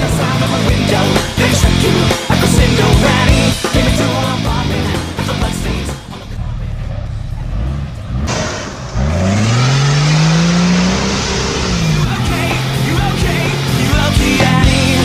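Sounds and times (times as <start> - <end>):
engine revving: 0.0 - 15.0.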